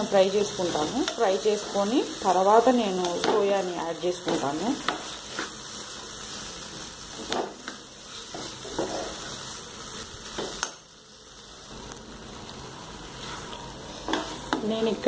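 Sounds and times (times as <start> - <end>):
food sizzling in a frying pan: 0.0 - 15.0
spoon scraping and knocking pan: 4.2 - 5.5, 8.3 - 9.4.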